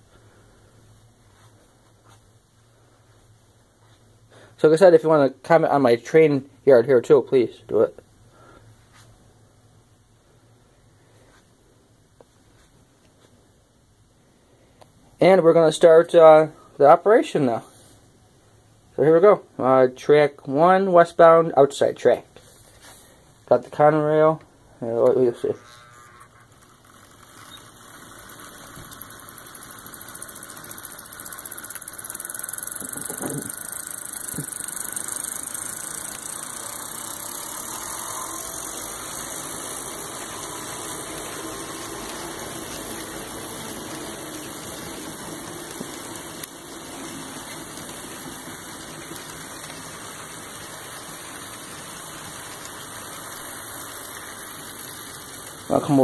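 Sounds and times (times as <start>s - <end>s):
model train motor humming: 25.1s - 56.0s
wheels rattling over rails: 25.4s - 56.0s.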